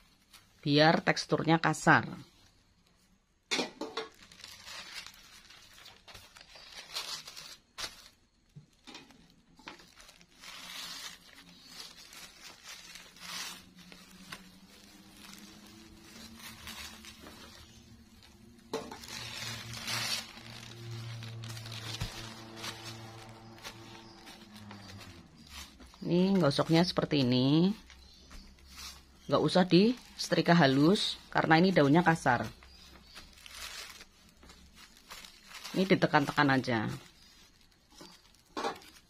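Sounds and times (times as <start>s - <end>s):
plastic crinkling: 0.0s - 39.0s
iron scraping over plastic sheets: 8.8s - 29.9s.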